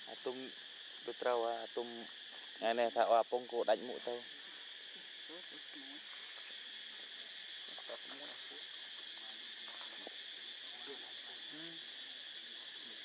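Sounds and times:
insects chorus: 0.0 - 13.0.

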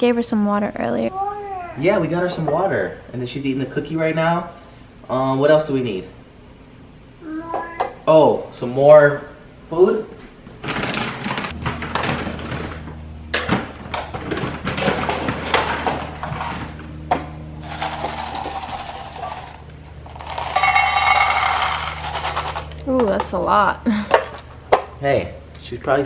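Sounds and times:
low hum: 11.4 - 23.9
kibble rattling into metal bowl: 17.6 - 23.2.

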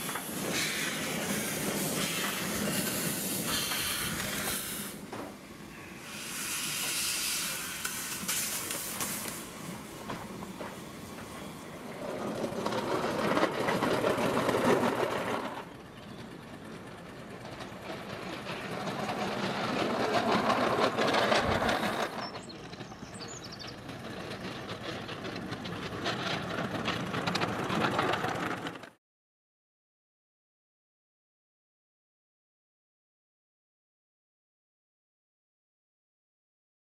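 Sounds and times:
steam locomotive exhaust chuffing: 0.0 - 28.8.

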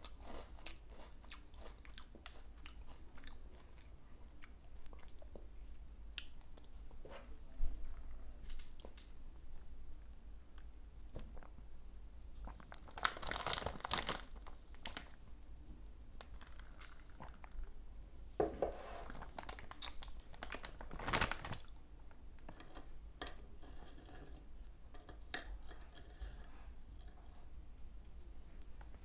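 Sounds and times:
crunchy snacks being chewed: 0.0 - 5.3, 12.4 - 15.2, 19.1 - 21.7.

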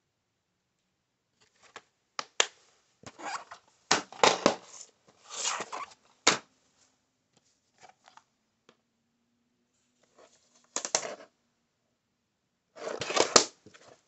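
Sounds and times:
plastic cases clicking and rustling: 12.8 - 13.6.

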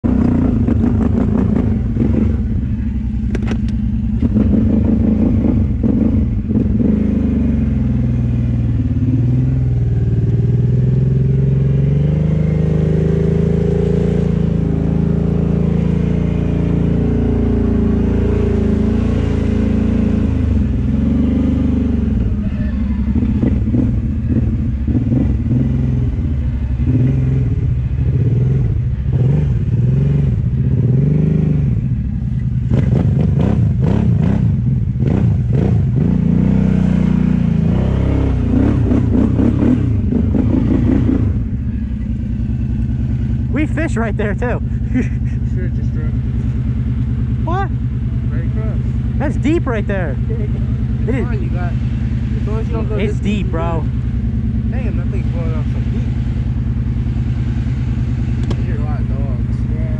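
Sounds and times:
atv engine revving: 0.0 - 59.9
vehicle wading through water: 54.8 - 59.9.

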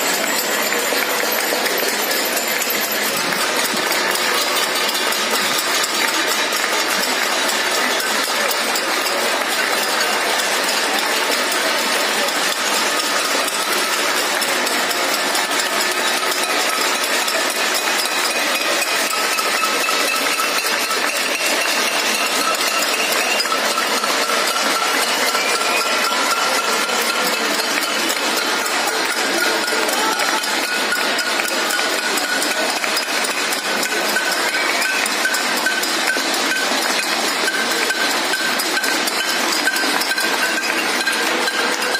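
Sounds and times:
crowd clapping and banging: 0.0 - 41.9.

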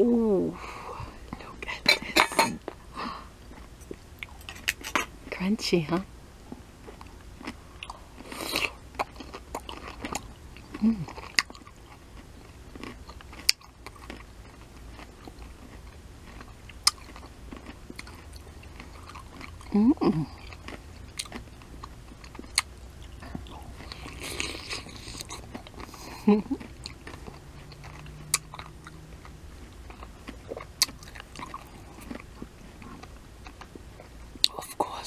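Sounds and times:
wet chewing: 3.4 - 5.1, 6.5 - 35.0
crunching pickle bites: 3.5 - 5.1, 12.7 - 34.6.

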